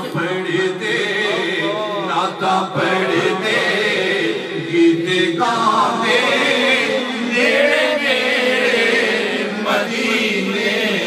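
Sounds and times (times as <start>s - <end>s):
man chanting into microphone: 0.0s - 11.0s.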